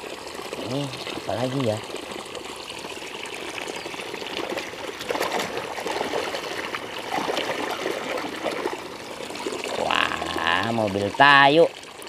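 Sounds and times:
hose water pouring into basin: 0:00.0 - 0:12.0.

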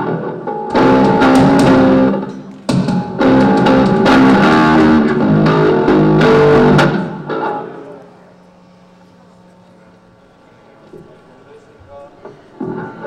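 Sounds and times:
drum kit: 0:00.0 - 0:07.6
electric guitar: 0:00.0 - 0:08.2
bass guitar: 0:00.7 - 0:07.5.

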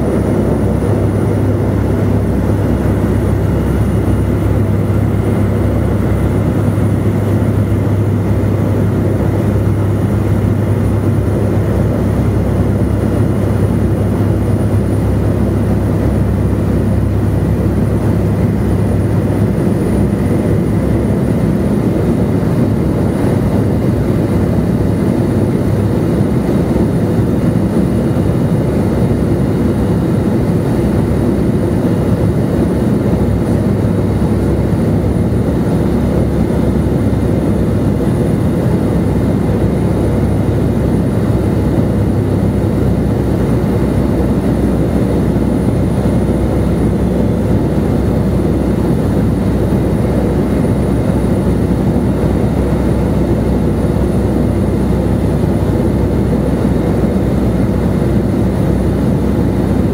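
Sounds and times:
plane engine and propeller droning: 0:00.0 - 0:59.9.

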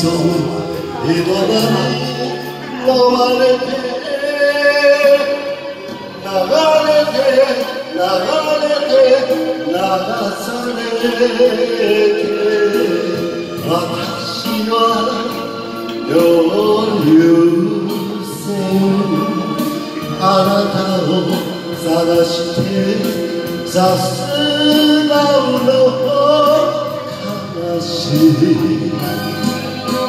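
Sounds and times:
karaoke backing track: 0:00.0 - 0:30.0
man singing into microphone: 0:00.0 - 0:30.0.

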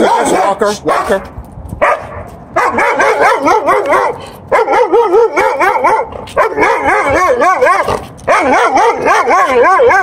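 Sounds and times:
dog barking excitedly: 0:00.0 - 0:10.0.

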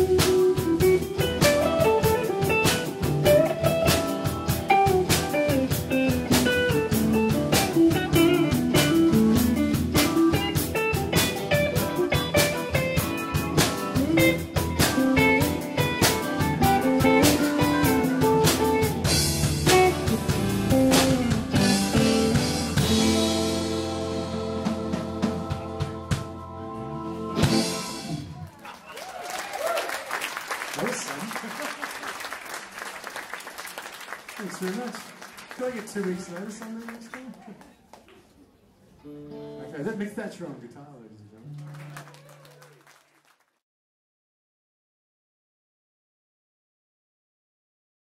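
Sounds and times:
electric guitar solo: 0:00.0 - 0:24.9
drum kit: 0:00.0 - 0:28.4.

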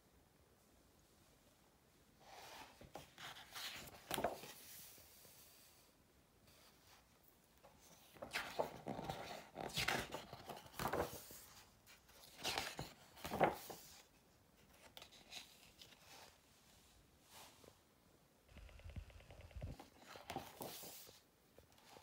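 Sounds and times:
book pages turning: 0:02.6 - 0:05.2, 0:07.6 - 0:16.4, 0:19.4 - 0:21.2.

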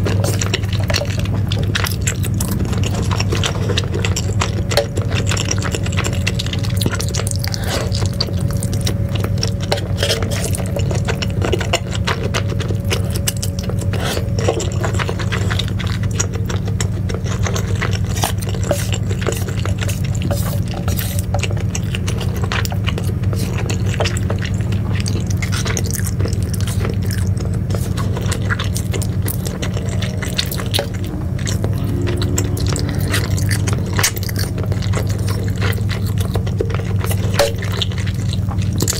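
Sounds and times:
low steady hum: 0:00.0 - 0:38.9
slurping and chewing noodles: 0:00.0 - 0:38.9.

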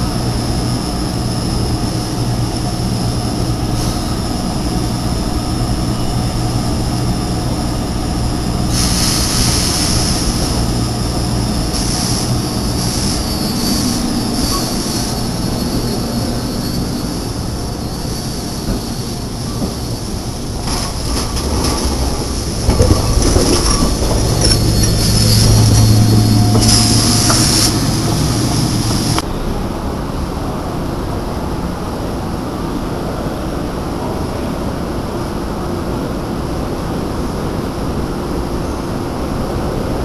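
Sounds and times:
high wheel squeal: 0:00.0 - 0:29.2
trolley equipment hum: 0:00.0 - 0:40.0.

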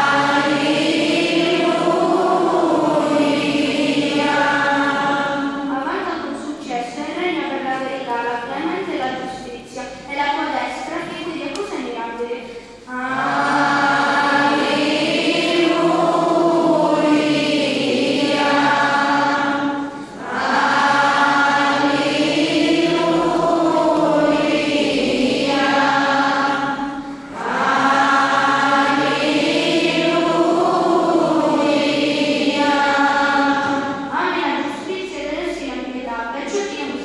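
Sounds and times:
choir chanting: 0:00.0 - 0:06.0, 0:12.8 - 0:34.7.

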